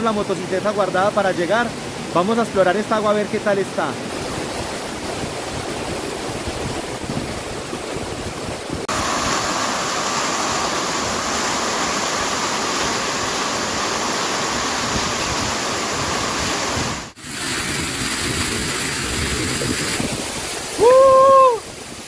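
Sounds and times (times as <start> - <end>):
waterfall splashing onto rocks: 8.8 - 22.0.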